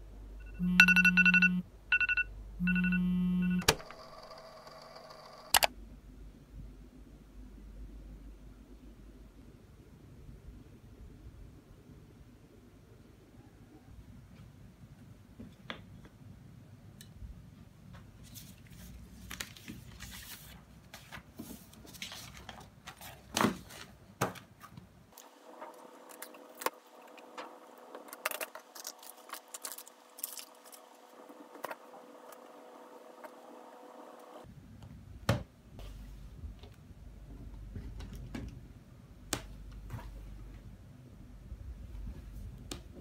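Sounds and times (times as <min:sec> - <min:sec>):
paper rustling: 0:18.2 - 0:32.4.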